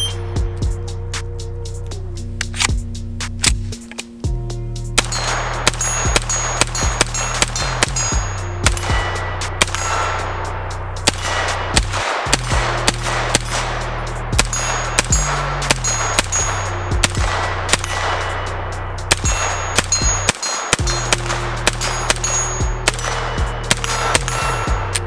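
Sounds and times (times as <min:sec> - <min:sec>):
steel targets ringing: 0:05.0 - 0:11.6, 0:14.4 - 0:17.0, 0:17.8 - 0:25.0
pistol gunshots: 0:05.0 - 0:25.0.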